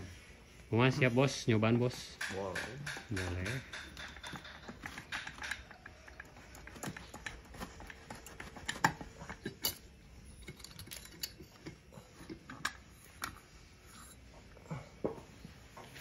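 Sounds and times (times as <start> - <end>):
sharp metal knocks: 2.1 - 5.9
metallic clicks of engine parts: 2.1 - 14.3.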